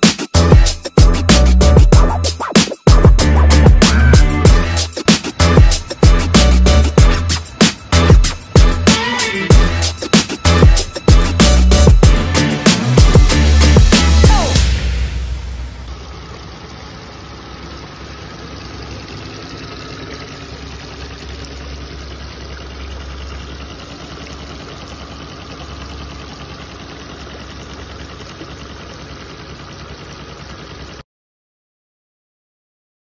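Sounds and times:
outboard motor running: 0.0s - 31.0s.

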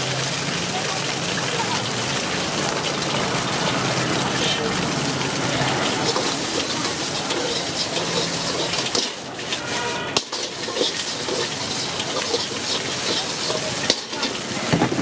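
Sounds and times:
egg sizzling in a wok: 0.2s - 15.0s
steel ladle scraping wok: 4.4s - 14.7s.

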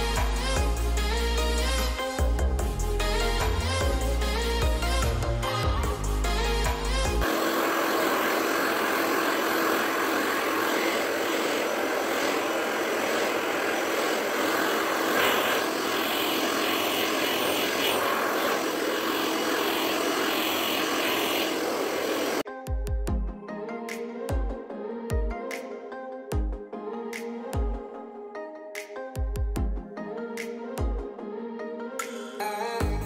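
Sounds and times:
hair dryer blowing air: 3.0s - 22.5s.

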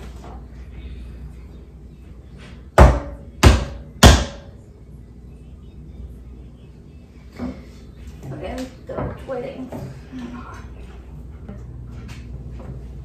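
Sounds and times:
loud bangs with ringing tail: 2.8s - 4.6s.

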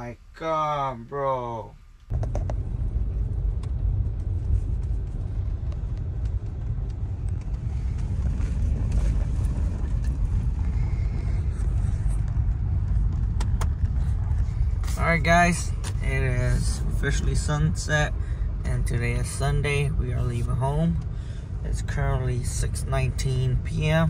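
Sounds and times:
vehicle driving on snow: 2.1s - 24.0s.

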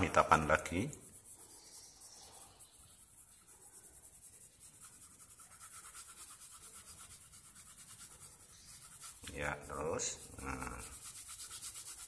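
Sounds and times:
pencil scratching on paper: 0.0s - 12.0s.

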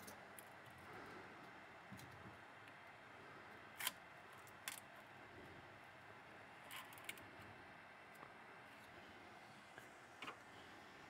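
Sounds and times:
room hiss: 0.0s - 11.0s
clicks and scrapes of hard objects: 6.6s - 7.3s.

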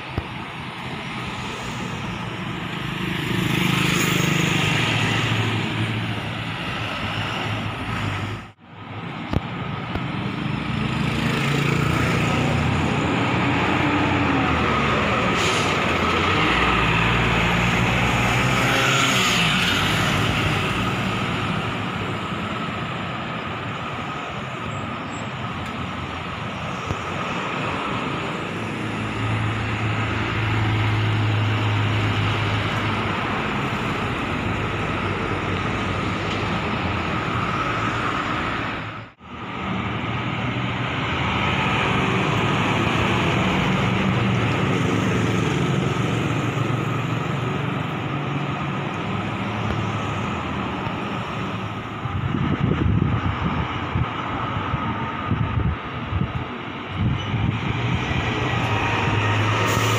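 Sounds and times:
cars driving past: 0.0s - 59.9s
steady road noise: 0.0s - 59.9s
bus engine running: 19.4s - 59.9s.

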